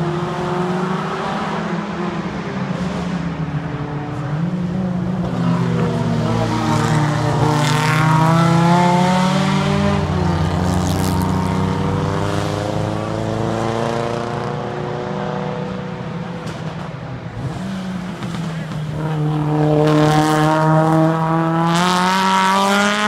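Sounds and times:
race car engines passing: 0.0 - 23.0.

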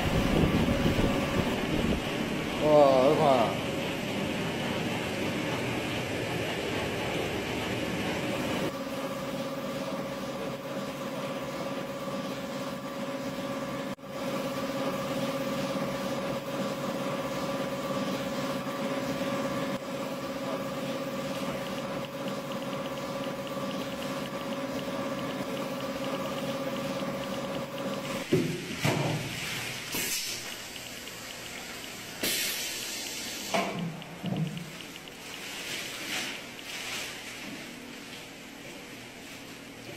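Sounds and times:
factory machinery hum: 0.0 - 39.9
short hissing bursts: 29.8 - 30.8, 32.0 - 33.7
machine click: 29.9 - 35.5.

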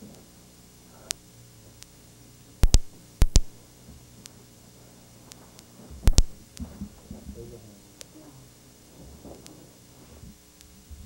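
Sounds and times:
sharp double smacks: 2.6 - 3.6, 6.1 - 6.4.

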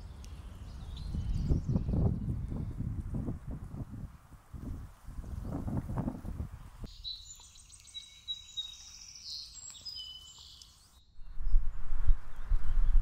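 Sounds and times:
songbird chirping and trilling: 0.0 - 2.7, 6.6 - 13.0.

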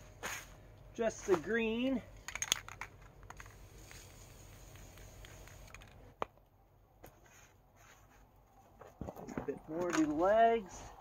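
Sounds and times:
faint spray hiss: 3.6 - 5.7.

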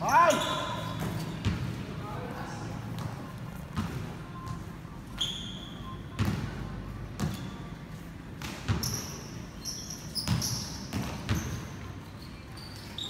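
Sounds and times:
shoe squeaks: 0.0 - 1.5, 4.4 - 6.2, 7.2 - 8.1, 8.7 - 13.0
basketball bouncing on court: 0.9 - 1.8, 6.2 - 6.6, 7.2 - 7.6, 8.4 - 9.2, 9.8 - 11.8.

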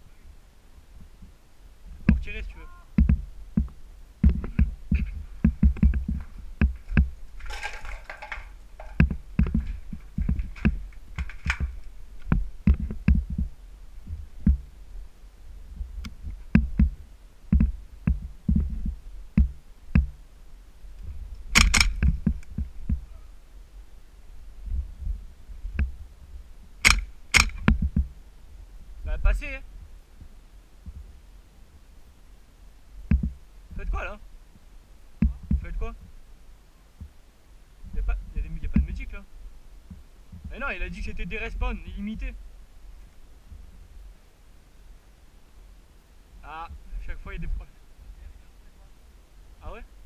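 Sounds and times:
footfalls low thuds: 1.9 - 14.8, 15.7 - 20.2, 21.1 - 23.1, 24.6 - 26.1, 27.4 - 28.2, 33.0 - 33.8, 35.2 - 35.9
sharp cracks: 6.6 - 13.2, 21.3 - 22.6, 26.8 - 27.8.

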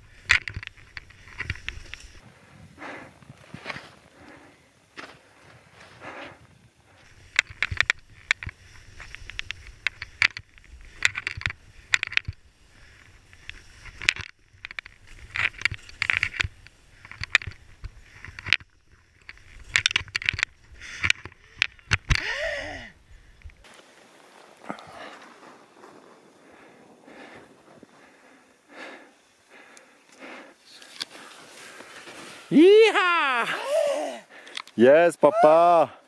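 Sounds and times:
wind rumbling on microphone: 0.0 - 4.8
skis scraping over crusty snow: 0.1 - 14.0, 23.6 - 29.4, 30.6 - 32.9.

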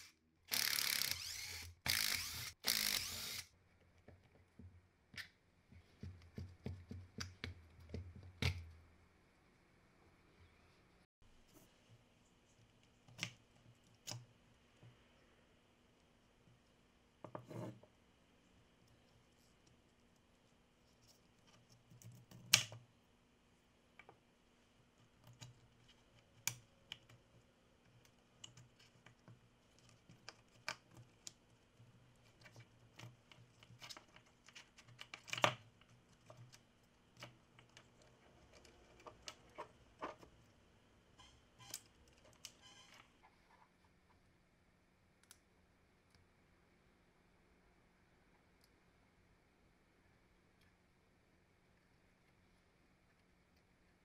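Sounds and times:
plastic parts clicking and scraping: 32.1 - 40.4.

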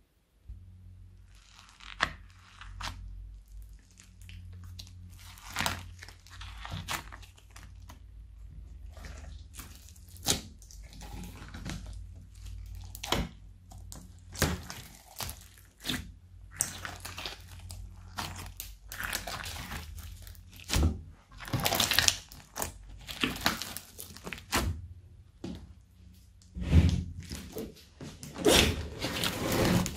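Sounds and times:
slime crackling and popping: 1.2 - 24.7.

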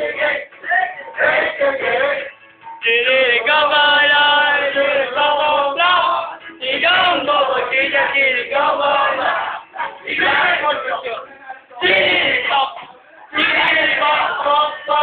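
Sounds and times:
man singing long notes: 0.0 - 9.2.

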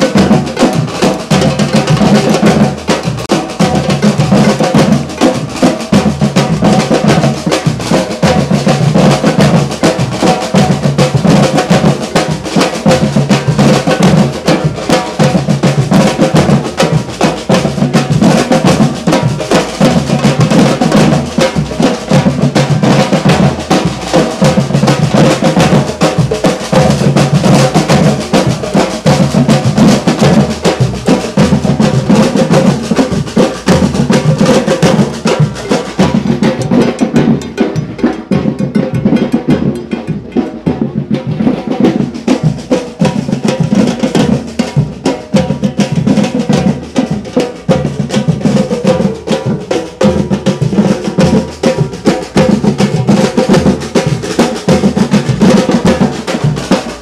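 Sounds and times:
snare drums: 0.0 - 57.0.

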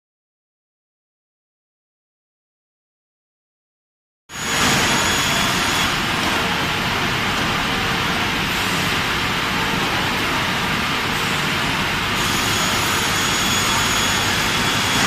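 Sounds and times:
machine line running: 4.3 - 15.0.

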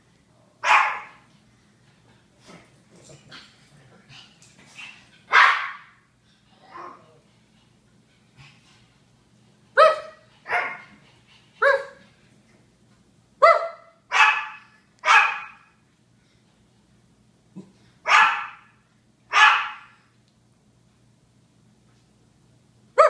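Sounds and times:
small dog barking: 0.6 - 1.2, 5.3 - 6.0, 9.8 - 10.9, 11.6 - 12.0, 13.4 - 15.7, 18.0 - 18.7, 19.3 - 20.0.

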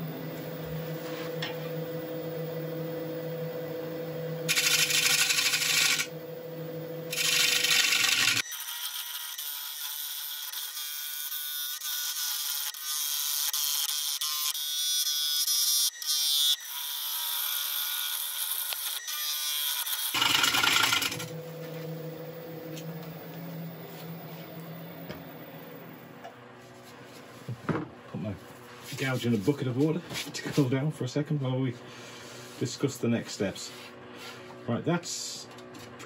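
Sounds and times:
lathe running hum: 0.0 - 8.4, 20.1 - 27.2
lathe tool scraping wood: 4.5 - 6.1, 7.1 - 8.4, 20.1 - 21.3.

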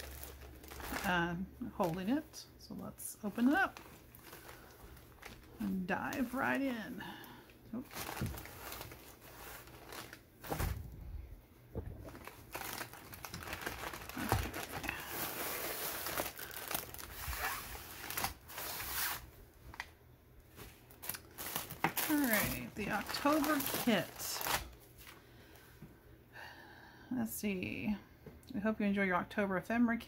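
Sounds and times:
packaging rustling and crinkling: 0.0 - 2.3, 3.2 - 6.7, 7.7 - 25.2.

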